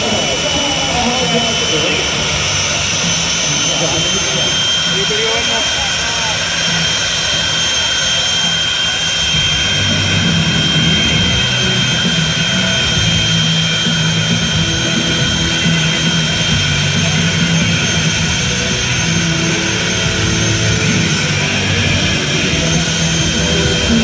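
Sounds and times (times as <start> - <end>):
broad rush of noise: 0.0 - 24.0
jet engine whining: 0.0 - 24.0.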